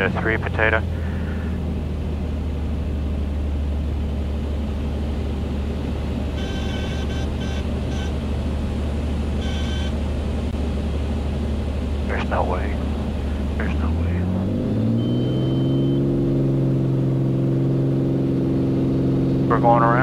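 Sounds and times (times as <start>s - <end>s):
aircraft engine drone: 0.0s - 20.0s
beeping cockpit warning tone: 6.4s - 8.2s, 9.4s - 9.9s, 14.9s - 16.1s.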